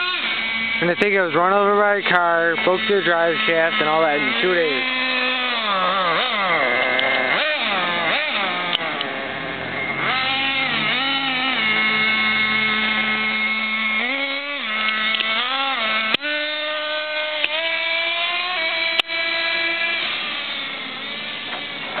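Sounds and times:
small engine high-pitched drone: 0.0s - 22.0s
sharp clicks: 8.6s - 9.1s, 14.8s - 15.4s.

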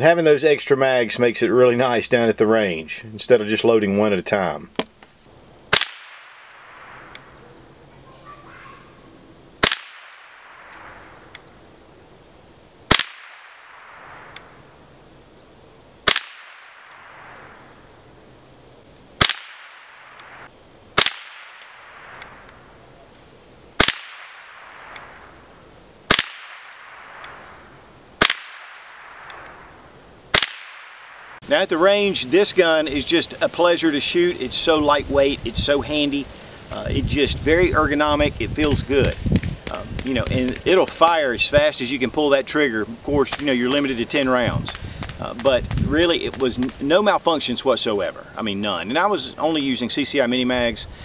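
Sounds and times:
rifle shots with echo: 5.7s - 7.1s, 9.6s - 11.0s, 12.9s - 14.3s, 16.0s - 17.7s, 19.2s - 20.1s, 21.0s - 22.2s, 23.8s - 25.2s, 26.1s - 27.5s, 28.2s - 29.7s, 30.3s - 31.4s.

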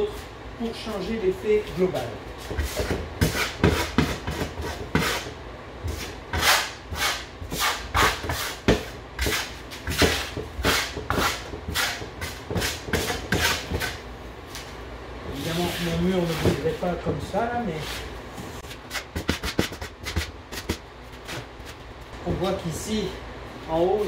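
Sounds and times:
spatula scraping plaster on board: 2.5s - 5.3s, 5.9s - 14.0s.

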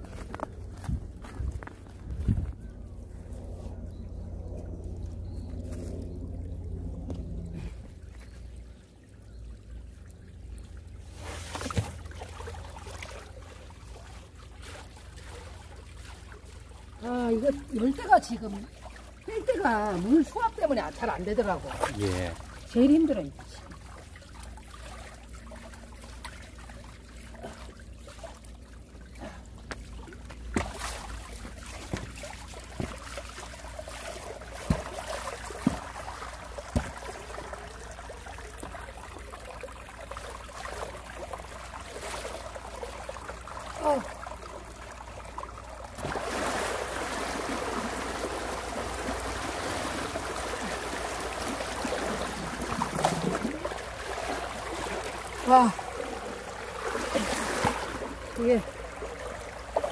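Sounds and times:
water trickling in a channel: 0.0s - 59.9s
water splashes: 6.2s - 59.9s.

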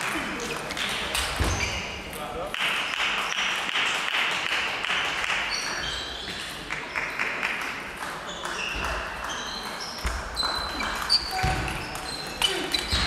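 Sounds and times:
spectators clapping: 0.0s - 1.4s, 2.1s - 11.2s.

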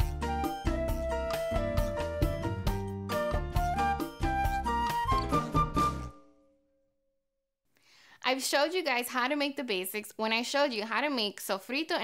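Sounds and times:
theme music with regular beat: 0.0s - 6.1s.

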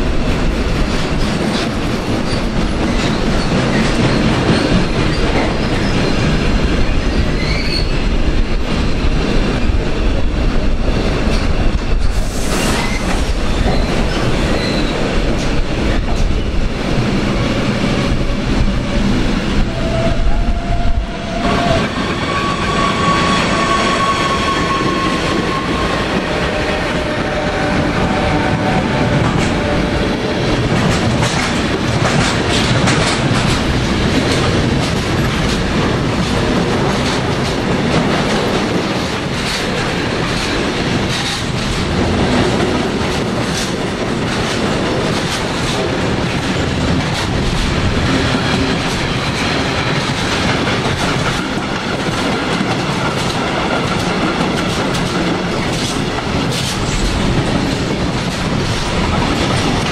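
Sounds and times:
train wheels clattering over rail joints: 0.2s - 7.9s, 26.2s - 59.9s.

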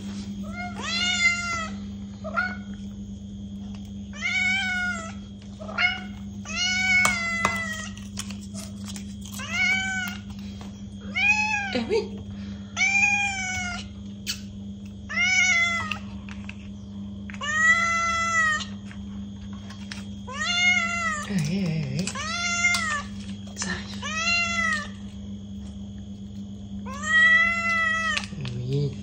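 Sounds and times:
steady low hum: 0.0s - 29.0s
cat meowing: 26.9s - 28.3s.

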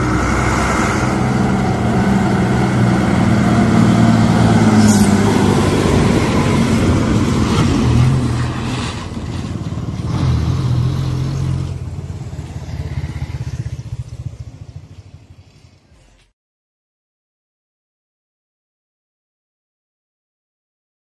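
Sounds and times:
diesel bus engine driving past: 0.0s - 16.3s.

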